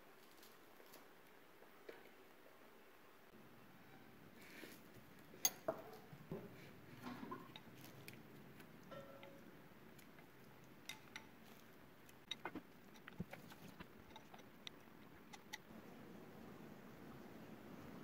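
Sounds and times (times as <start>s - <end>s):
kitchen clicks and taps: 5.4s - 7.7s.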